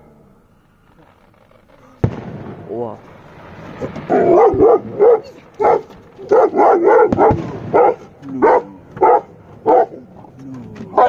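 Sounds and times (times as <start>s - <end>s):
dull firework bangs: 1.9s - 11.0s
dog barking: 4.1s - 10.0s.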